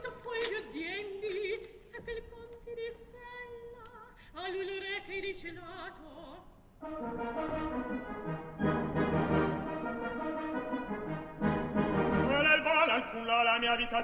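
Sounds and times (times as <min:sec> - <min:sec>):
operatic soprano singing: 0:00.0 - 0:06.5, 0:12.3 - 0:14.0
quiet orchestra: 0:06.0 - 0:14.0.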